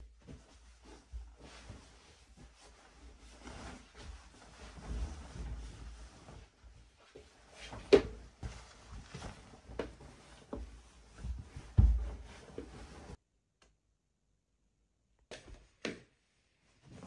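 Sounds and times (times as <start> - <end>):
bedding rustling and flapping: 0.0 - 13.2
soft thumps on mattress: 7.2 - 13.1.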